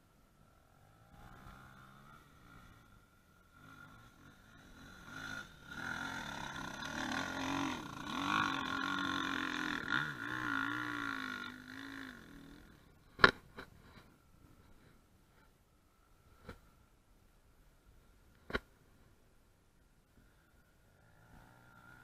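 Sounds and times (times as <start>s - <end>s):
dirt bike engine revving: 0.6s - 13.0s.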